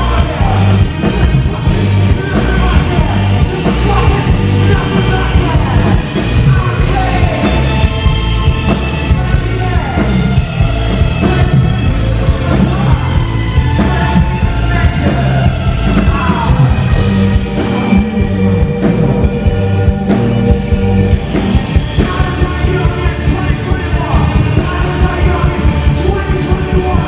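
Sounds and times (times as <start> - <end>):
person singing through pa: 0.0 - 8.1
bass guitar: 0.0 - 27.0
drums: 0.0 - 27.0
electric guitar: 0.0 - 27.0.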